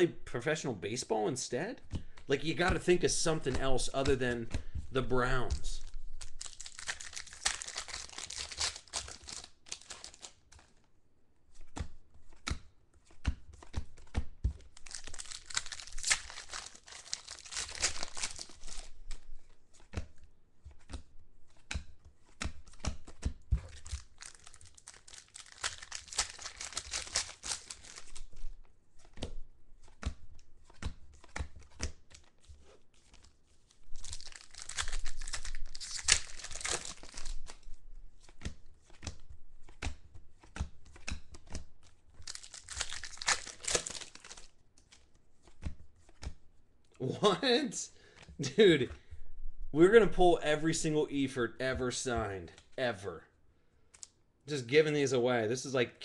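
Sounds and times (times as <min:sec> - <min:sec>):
cards clicking and tapping: 0:01.8 - 0:10.8, 0:11.6 - 0:33.4, 0:34.0 - 0:46.4
card pack wrappers tearing: 0:02.4 - 0:10.7, 0:14.7 - 0:19.2, 0:23.7 - 0:28.5, 0:33.0 - 0:37.7, 0:42.2 - 0:45.0.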